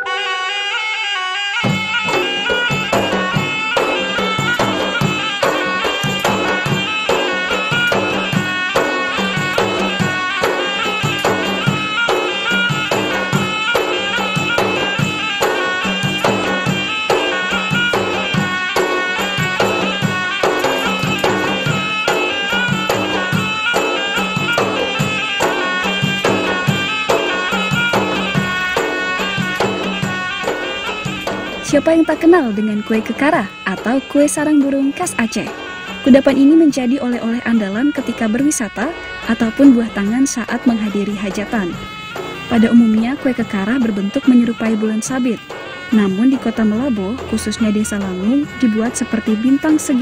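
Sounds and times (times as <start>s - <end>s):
folk-style music over a drone: 0.0s - 50.0s.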